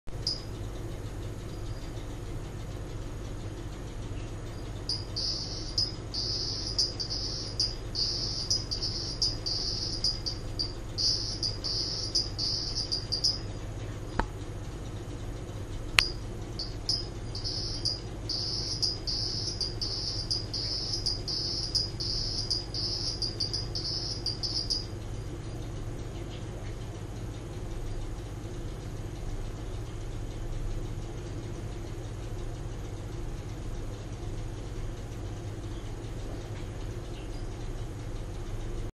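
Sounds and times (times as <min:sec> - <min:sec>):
low hum: 0:00.1 - 0:26.8
toad trilling call: 0:04.9 - 0:13.4, 0:16.6 - 0:24.8
sharp clicks: 0:15.8 - 0:24.8.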